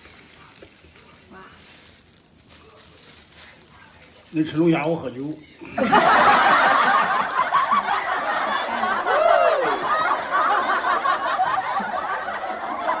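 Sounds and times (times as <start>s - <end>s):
people laughing: 5.6s - 13.0s.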